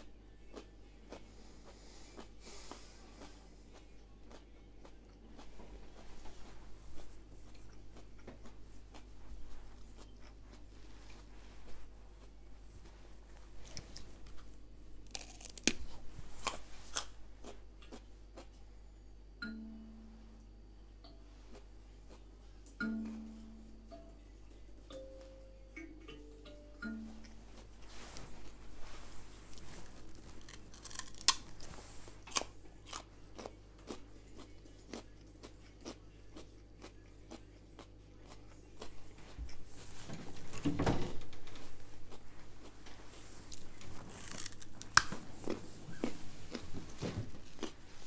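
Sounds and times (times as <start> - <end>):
carrot crunching: 0.5 - 18.6, 27.6 - 39.9, 41.9 - 48.0.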